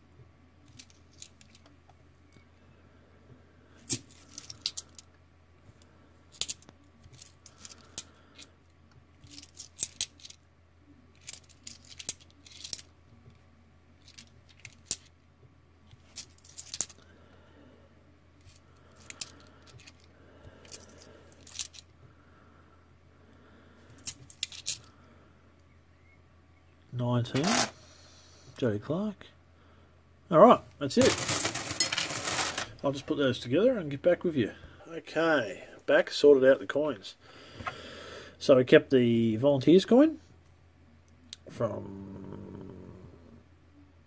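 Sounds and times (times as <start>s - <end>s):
coins clinking: 11.2s - 12.9s, 27.4s - 27.8s, 31.0s - 32.8s.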